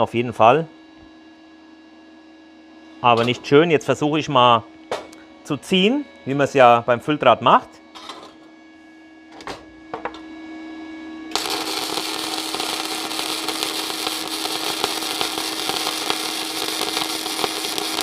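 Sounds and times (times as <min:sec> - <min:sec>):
spatter pops: 0:11.3 - 0:18.0
welding arc crackling sizzle: 0:11.3 - 0:18.0.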